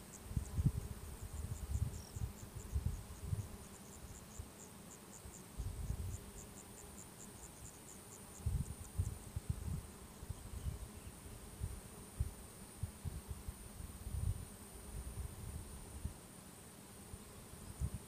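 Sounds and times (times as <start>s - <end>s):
insect chirping: 0.0s - 11.3s
wind rumbling on microphone: 0.2s - 3.6s, 5.6s - 6.2s, 8.4s - 16.2s, 17.7s - 18.0s.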